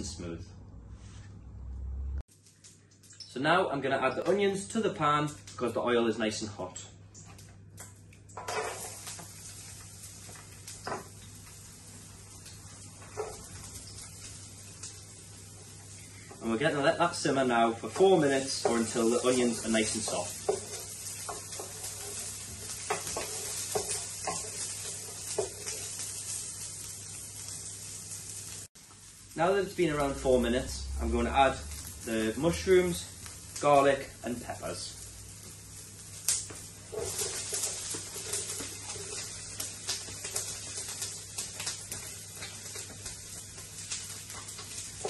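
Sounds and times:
onions sizzling in oil: 8.3 - 45.0
wooden spoon scraping pan: 18.0 - 25.9, 36.9 - 39.5.

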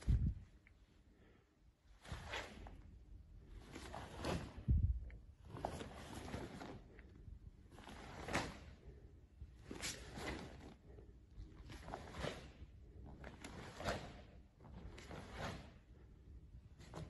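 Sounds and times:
uniform snapping swishes: 9.7 - 10.6.

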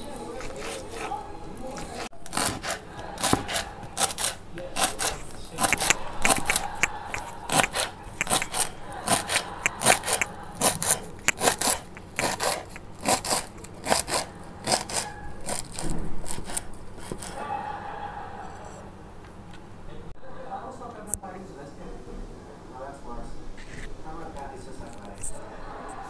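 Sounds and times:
knife chopping on wooden board: 1.8 - 17.3.

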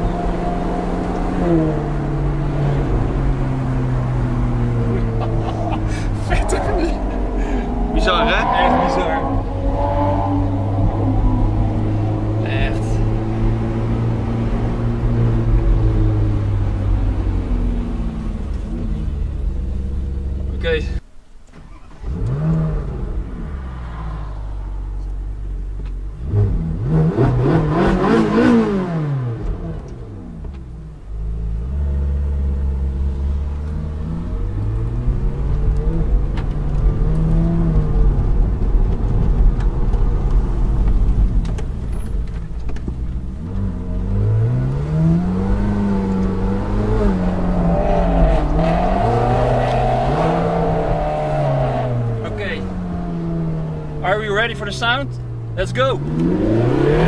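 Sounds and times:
car engine revving from inside cabin: 5.6 - 16.8, 22.0 - 23.5, 26.2 - 30.5, 43.4 - 53.7, 56.0 - 57.0.

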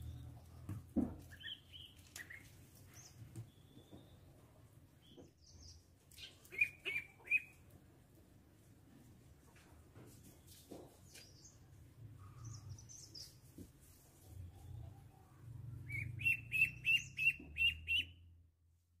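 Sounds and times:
duckling peeping: 6.2 - 7.6, 15.9 - 18.1.

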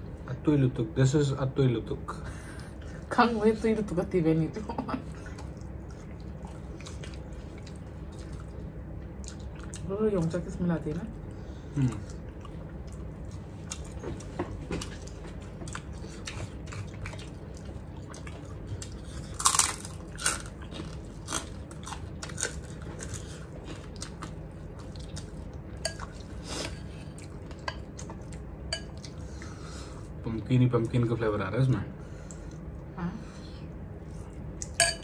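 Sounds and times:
people chewing food: 5.0 - 30.2, 32.1 - 34.8
spoon clinking on dishes: 28.7 - 29.0, 34.7 - 35.0.

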